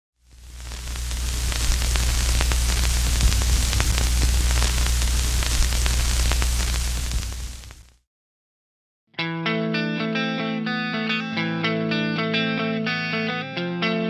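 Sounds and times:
crackling static: 0.2 - 8.1
low electrical hum: 0.3 - 7.9.

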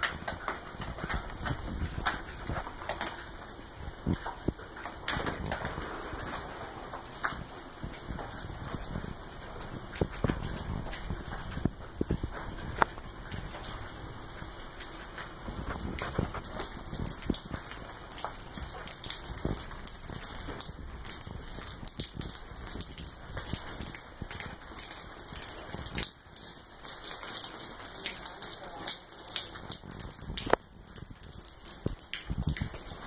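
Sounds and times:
footsteps crunching on rubble: 0.0 - 24.7.

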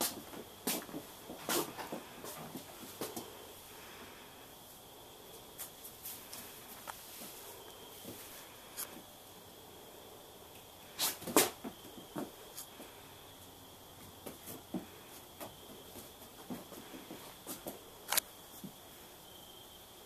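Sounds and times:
donkey hooves on barn floor: 0.0 - 3.4, 11.2 - 13.0, 14.0 - 17.9.

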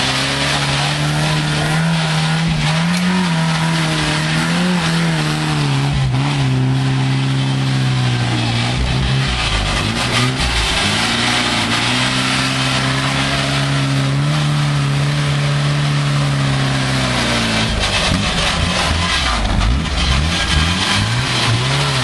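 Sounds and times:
truck engine revving hard: 0.0 - 22.0
wheels spinning in leaves and dirt: 7.3 - 13.9, 17.0 - 22.0.

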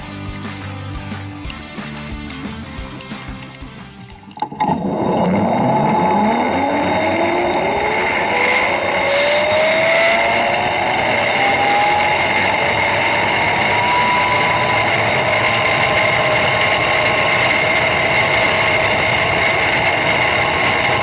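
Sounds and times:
pulley wheels whining on cable: 0.1 - 21.0
zip-line trolley launch: 4.5 - 21.0.

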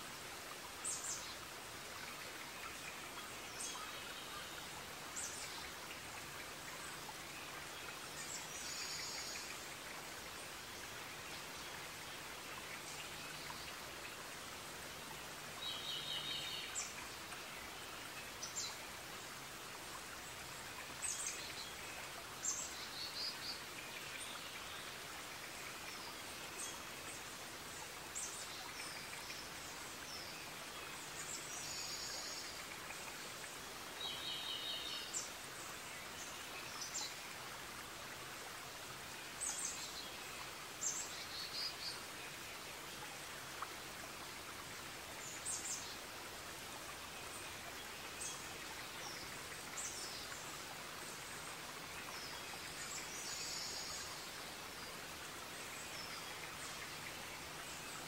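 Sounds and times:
steady background hiss: 0.0 - 58.0.

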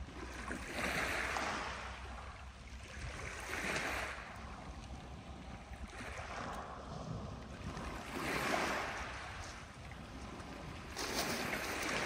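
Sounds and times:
strong wind gusts: 4.4 - 12.0.

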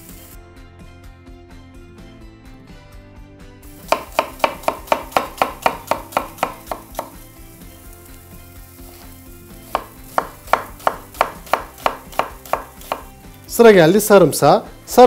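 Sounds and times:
knife chopping on wooden board: 3.7 - 7.2, 9.7 - 13.3.

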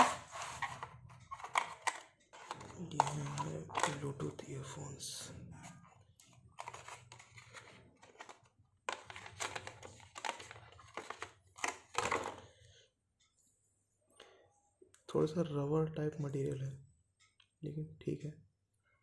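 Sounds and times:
plastic crinkling and rustling: 0.0 - 4.3, 6.2 - 12.4.

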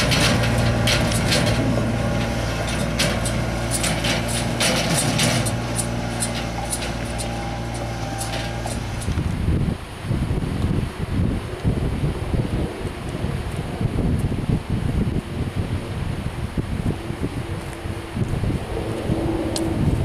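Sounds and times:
trailer clicks and gravel crunches: 0.0 - 9.5
utility vehicle engine running: 0.0 - 9.6.

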